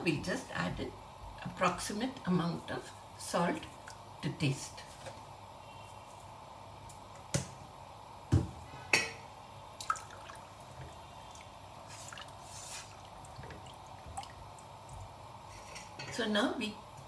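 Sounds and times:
liquid sloshing and dripping: 0:09.8 - 0:15.7
spatula stirring in a pot: 0:11.8 - 0:13.6.

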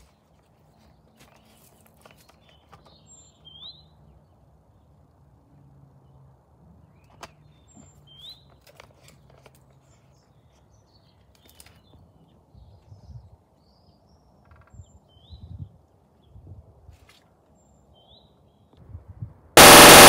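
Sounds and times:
small birds chirping: 0:00.0 - 0:05.0, 0:06.8 - 0:08.8.

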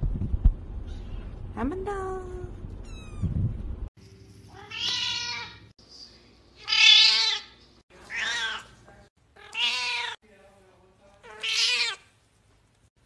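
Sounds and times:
cat meowing: 0:04.5 - 0:05.6, 0:06.6 - 0:07.5, 0:09.4 - 0:10.2, 0:11.3 - 0:12.0.

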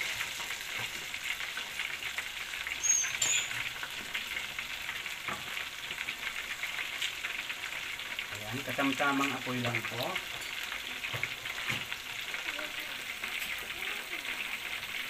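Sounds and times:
oil sizzling and crackling: 0:00.0 - 0:15.0
high squeak: 0:02.8 - 0:03.6.

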